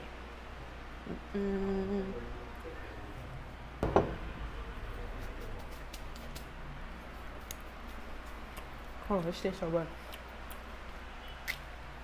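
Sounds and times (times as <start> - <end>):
person humming: 1.0 - 2.4
sharp knock: 3.8 - 4.2.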